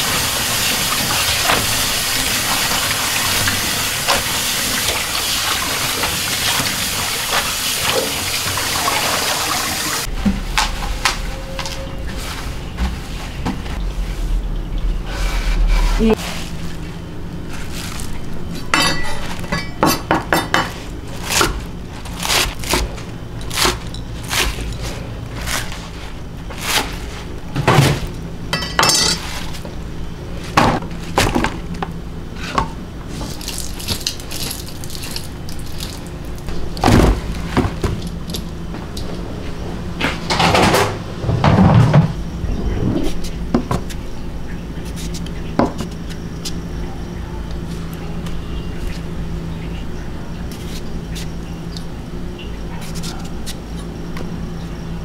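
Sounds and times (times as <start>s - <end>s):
steady low hum: 10.0s - 55.0s
bowls and utensils clattering: 18.7s - 20.8s, 28.5s - 29.5s.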